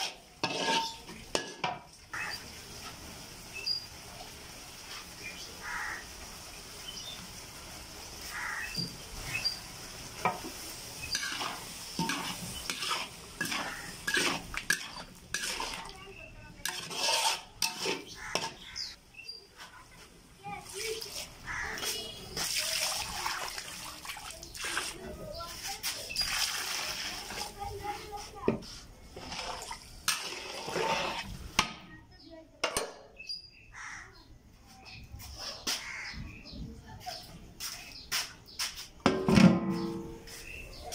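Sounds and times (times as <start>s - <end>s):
metal spatula scraping wok: 0.0s - 2.5s, 10.2s - 19.0s, 28.2s - 31.6s, 39.1s - 40.6s
ladle stirring curry: 0.0s - 3.1s, 9.4s - 19.0s, 28.2s - 31.6s
light sizzle: 0.0s - 31.9s.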